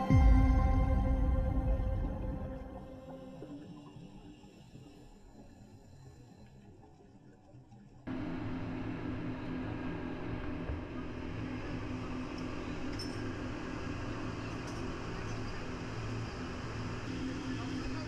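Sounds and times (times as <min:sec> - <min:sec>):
faint music: 0:00.0 - 0:06.7, 0:08.0 - 0:18.0
wind: 0:08.0 - 0:18.0
speedboat engines droning: 0:08.1 - 0:18.0
light metallic clinks: 0:12.8 - 0:13.3.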